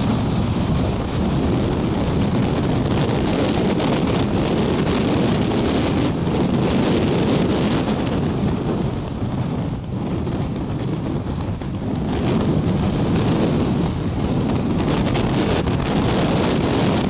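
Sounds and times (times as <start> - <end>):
wind buffeting microphone: 0.0 - 17.0
surf breaking: 10.5 - 17.0.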